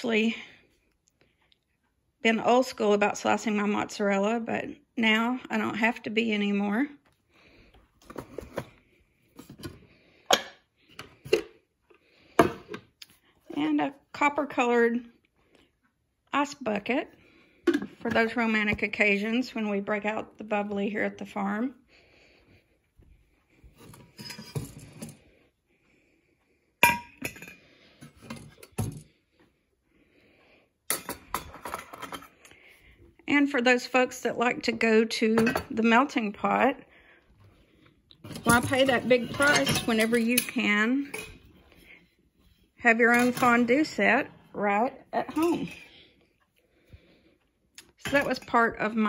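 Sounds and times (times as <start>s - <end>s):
glass and ceramics clinking: 26.8s - 27.6s.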